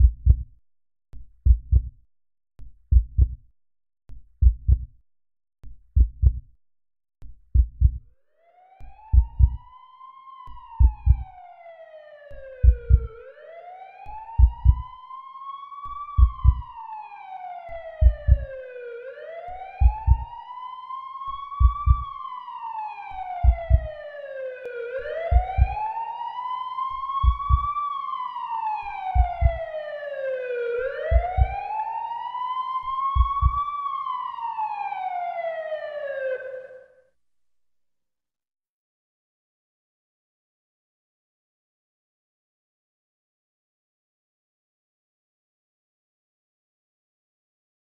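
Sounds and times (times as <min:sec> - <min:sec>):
low heartbeat thumps: 0:00.0 - 0:00.6, 0:01.4 - 0:02.0, 0:02.6 - 0:03.5, 0:04.4 - 0:05.0, 0:05.7 - 0:06.5, 0:07.2 - 0:08.1, 0:09.0 - 0:09.6, 0:10.7 - 0:11.3, 0:12.6 - 0:13.2, 0:14.3 - 0:15.0, 0:16.1 - 0:16.8, 0:18.0 - 0:18.6, 0:19.8 - 0:20.4, 0:21.6 - 0:22.2, 0:23.4 - 0:24.0, 0:25.2 - 0:25.8, 0:27.2 - 0:27.8, 0:29.0 - 0:29.7, 0:31.0 - 0:31.7, 0:33.1 - 0:33.7
emergency siren wailing: 0:08.4 - 0:37.0.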